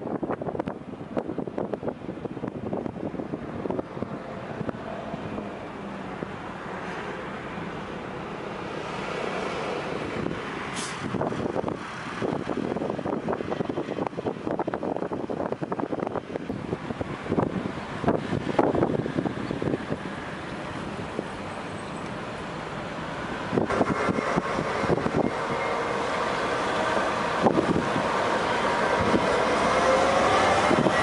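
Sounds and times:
wind buffeting microphone: 0.0s - 7.6s, 8.2s - 21.6s, 22.9s - 31.0s
vehicle passing: 22.5s - 31.0s.

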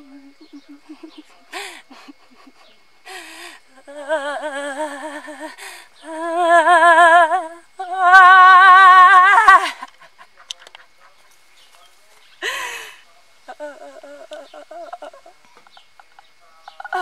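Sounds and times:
woman keening wavering tones: 0.0s - 9.9s, 13.5s - 15.4s, 16.8s - 17.0s.

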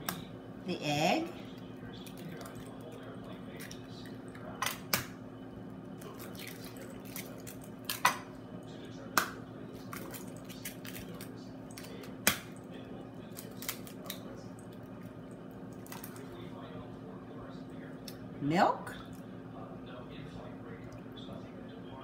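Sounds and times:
steady low hum: 0.0s - 22.0s
eggs cracked on ramekins: 6.0s - 8.3s.

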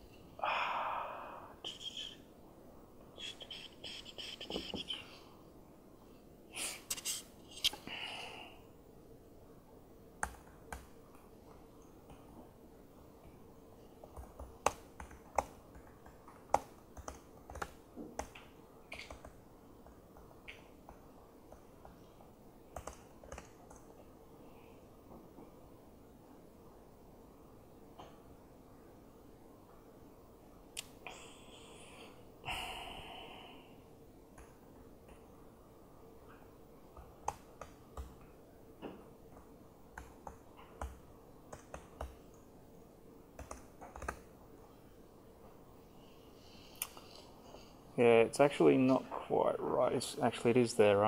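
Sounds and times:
faint steady hum: 0.0s - 51.0s
laptop keyboard typing: 10.2s - 11.2s, 14.0s - 24.0s, 36.9s - 38.4s, 39.3s - 42.4s, 43.3s - 44.3s.

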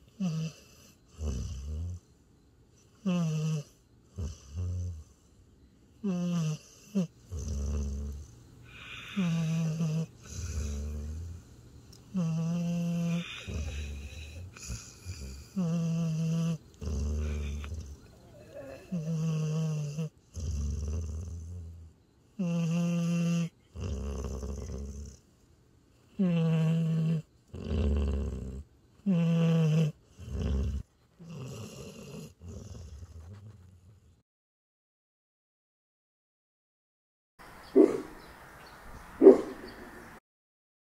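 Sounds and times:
dog snoring: 0.0s - 2.1s, 2.8s - 5.3s, 6.0s - 25.3s, 26.0s - 34.2s
dog breathing softly: 13.1s - 15.6s.

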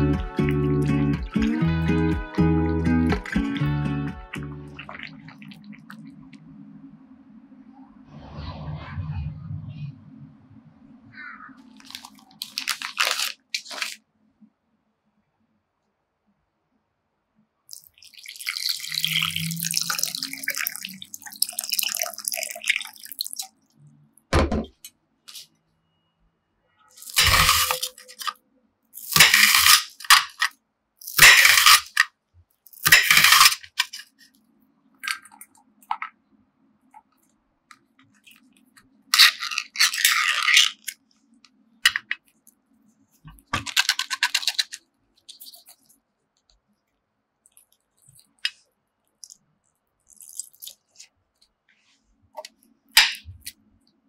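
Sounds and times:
water pouring into glass bowl: 17.7s - 23.6s.

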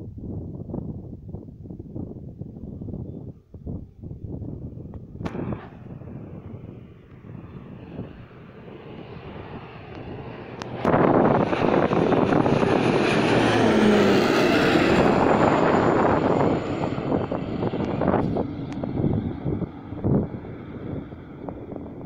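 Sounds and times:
turboprop aircraft passing overhead: 1.4s - 22.0s
high whine falling in pitch: 5.2s - 8.1s.

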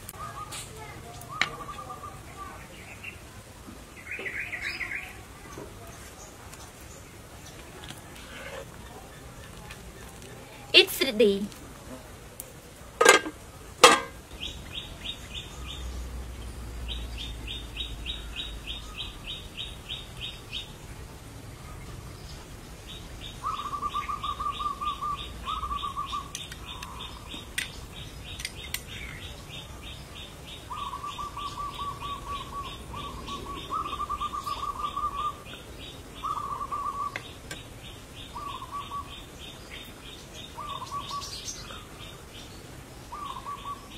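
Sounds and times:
sharp knocks: 13.0s - 14.2s
bird high chirps: 30.6s - 39.8s.

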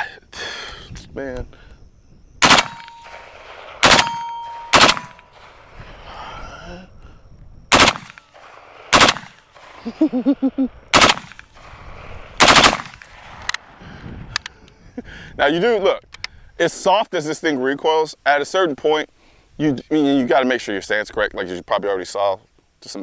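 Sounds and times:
steady ringing tone: 2.4s - 5.6s
rifle gunshots: 2.4s - 5.7s, 7.7s - 10.1s, 10.9s - 13.8s.

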